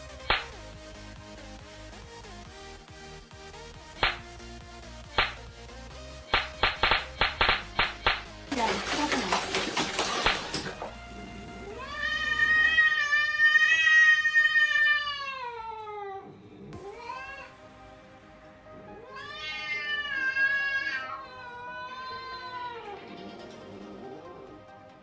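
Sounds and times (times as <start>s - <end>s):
background music: 0.0s - 14.8s, 16.2s - 25.0s
cat yowling meows: 11.6s - 17.6s, 19.0s - 23.1s.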